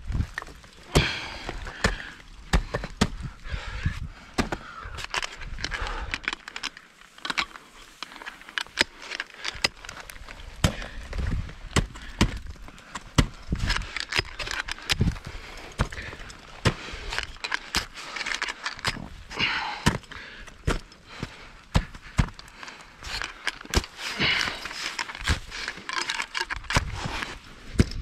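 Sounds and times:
carabiners clinking: 0:04.9 - 0:11.1, 0:13.5 - 0:19.8, 0:22.2 - 0:28.0.

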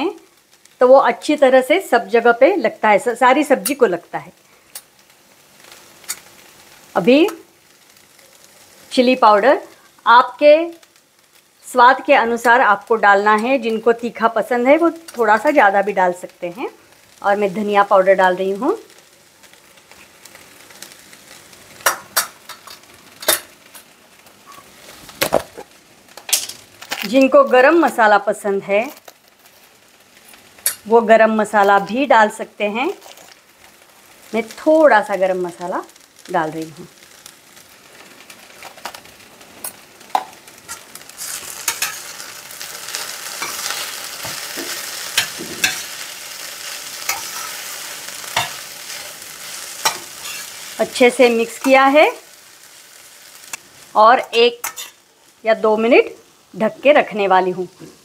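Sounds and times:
vegetables sizzling in a pan: 0:00.0 - 0:58.0
spatula scraping metal pan: 0:40.7 - 0:46.0, 0:47.0 - 0:50.6.

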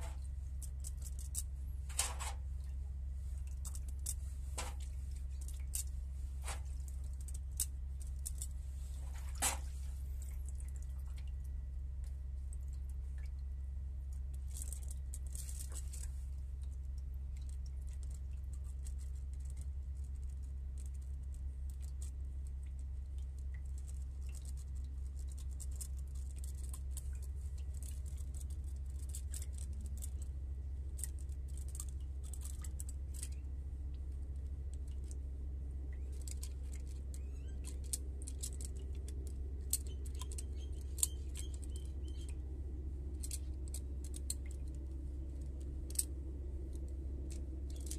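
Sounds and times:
low hum: 0:00.0 - 0:47.9.

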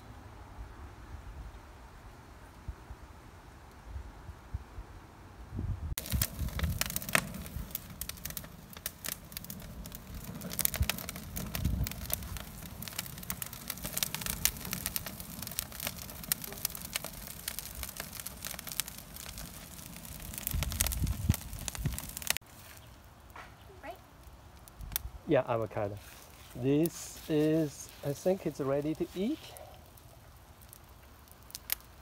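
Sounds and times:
low rumbles: 0:05.6 - 0:22.4
branches crackling in a fire: 0:05.9 - 0:32.0.

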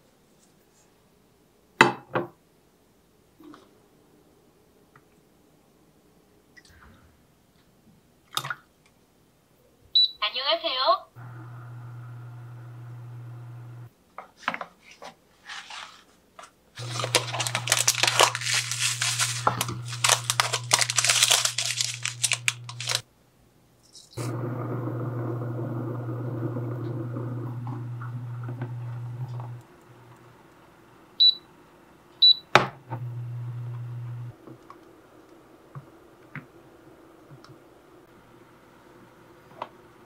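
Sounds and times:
electric cooktop hum: 0:11.2 - 0:13.9, 0:16.8 - 0:23.0, 0:24.2 - 0:31.4, 0:32.2 - 0:34.4
packaging crinkling and tearing: 0:16.8 - 0:23.0.

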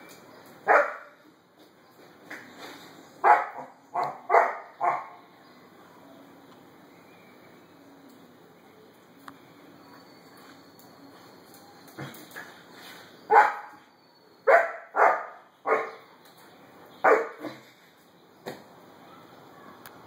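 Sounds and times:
puppy barking: 0:00.7 - 0:01.1, 0:03.2 - 0:05.2, 0:13.3 - 0:13.8, 0:14.5 - 0:16.0, 0:17.0 - 0:17.6.

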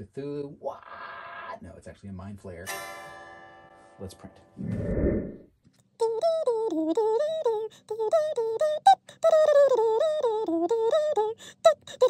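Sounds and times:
high chipmunk-like voice singing: 0:06.0 - 0:12.0.

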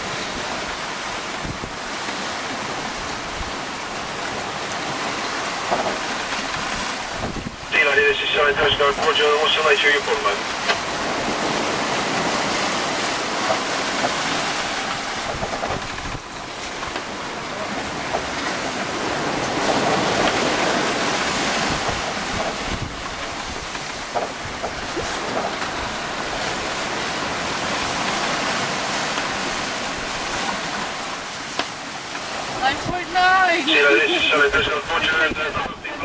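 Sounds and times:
wind buffeting microphone: 0:00.0 - 0:02.0, 0:02.7 - 0:07.7, 0:10.8 - 0:31.0
water rushing along boat hull: 0:00.0 - 0:36.0.

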